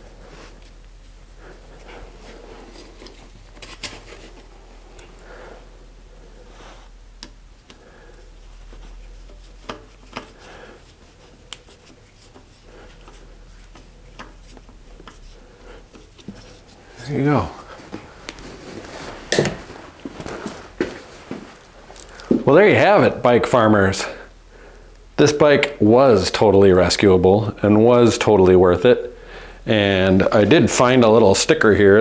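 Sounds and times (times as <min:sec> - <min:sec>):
hands handling bicycle saddle: 0:08.6 - 0:16.8.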